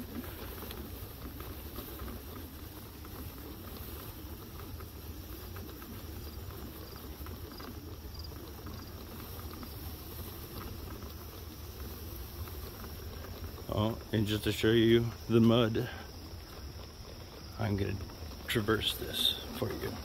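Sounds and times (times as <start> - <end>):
hoverboard rumbling on grass: 0.0 - 20.0
faint insect chirps: 3.7 - 20.0.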